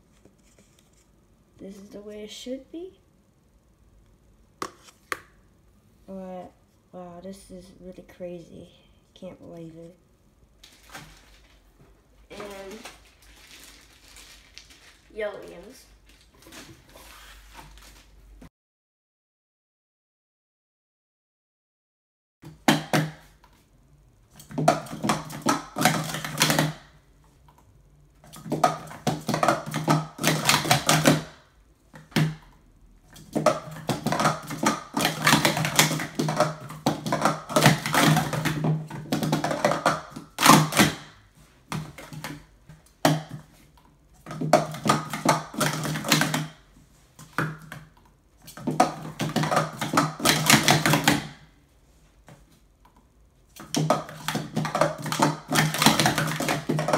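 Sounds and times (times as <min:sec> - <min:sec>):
plastic cups clattering: 0:12.3 - 0:18.0, 0:24.3 - 0:27.0, 0:28.2 - 0:32.5, 0:33.1 - 0:43.6, 0:44.2 - 0:51.5, 0:53.5 - 0:56.9.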